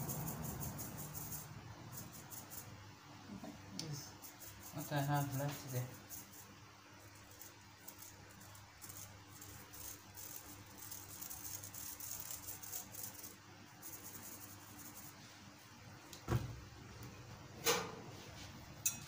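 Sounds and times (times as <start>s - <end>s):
dull thump: 16.3s - 16.6s.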